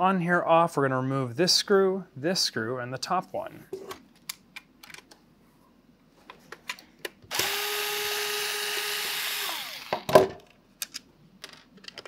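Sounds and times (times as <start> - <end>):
electric screwdriver running: 7.3 - 10.1.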